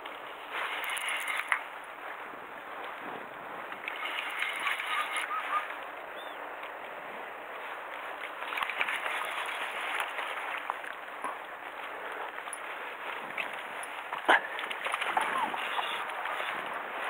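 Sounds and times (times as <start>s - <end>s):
wind: 0.0s - 17.0s.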